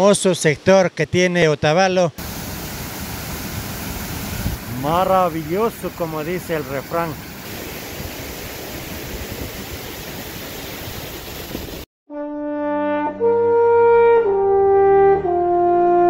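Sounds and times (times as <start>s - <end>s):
waterfall rushing: 2.2s - 11.9s.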